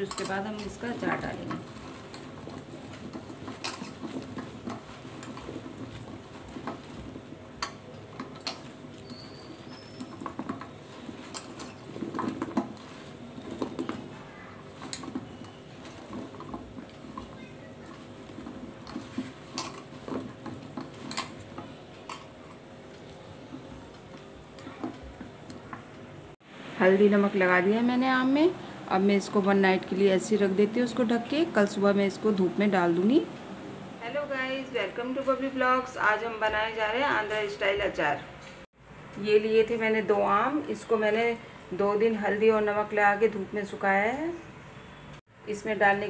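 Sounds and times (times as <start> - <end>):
clinks against metal bowl: 0.0 - 0.8
mango pieces shuffling in bowl: 0.7 - 21.7.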